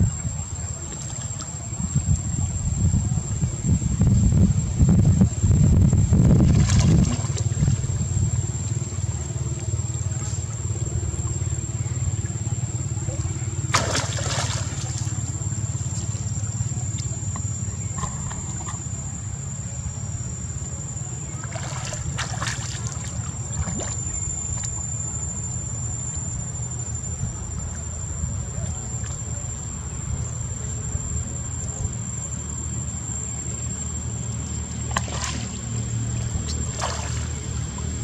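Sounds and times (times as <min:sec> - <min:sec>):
steady low rumble: 0:00.0 - 0:38.0
thin high-pitched whine: 0:00.0 - 0:38.0
monkeys splashing in water: 0:06.4 - 0:17.1, 0:21.3 - 0:24.2, 0:34.6 - 0:38.0.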